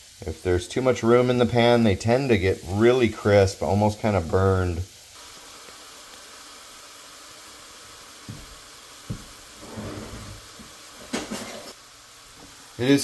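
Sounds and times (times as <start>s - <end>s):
mushrooms frying in oil: 0.0s - 13.0s.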